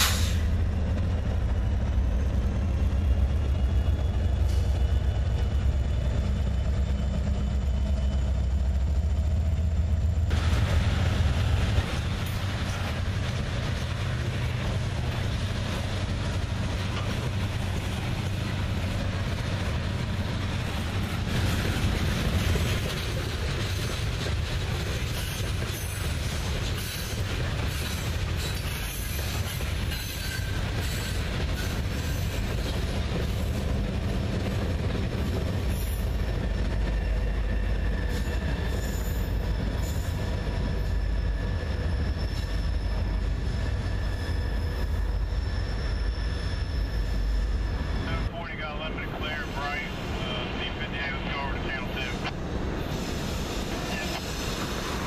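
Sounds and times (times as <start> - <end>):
diesel locomotive rumble: 0.0 - 55.0
freight train wheels rumbling: 0.0 - 55.0
faint wheel squeal: 37.0 - 47.9.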